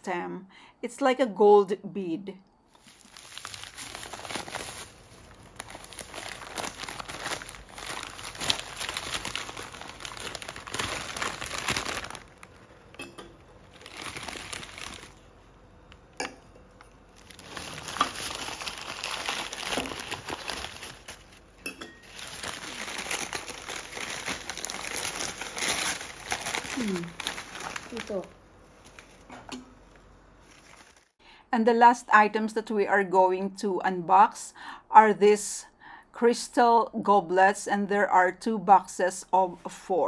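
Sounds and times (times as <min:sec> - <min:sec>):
packing paper crinkling and rustling: 0:02.7 - 0:13.0, 0:13.6 - 0:15.4, 0:17.1 - 0:31.2
light glass clinks: 0:21.6 - 0:22.0.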